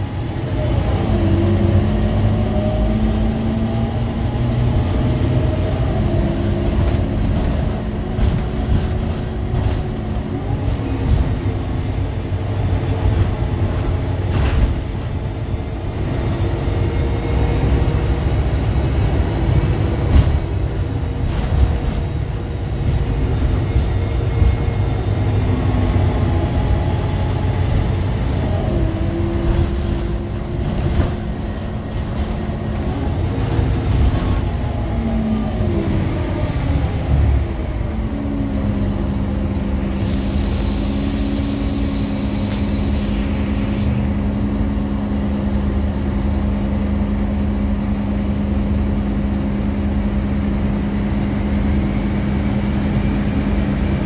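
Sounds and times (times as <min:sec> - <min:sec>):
bus diesel engine drone: 0:00.0 - 0:54.0
road rumble: 0:00.0 - 0:54.0.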